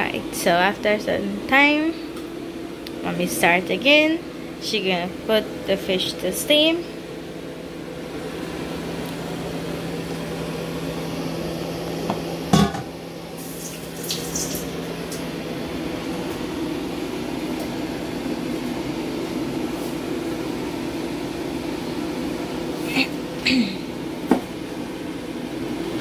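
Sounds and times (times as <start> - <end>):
appliance hum: 0.0 - 26.0
dishes clinking: 12.6 - 12.9.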